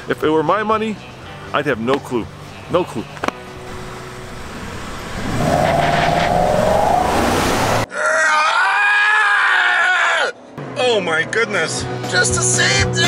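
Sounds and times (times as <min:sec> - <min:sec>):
pickup truck engines revving: 0:02.3 - 0:07.9.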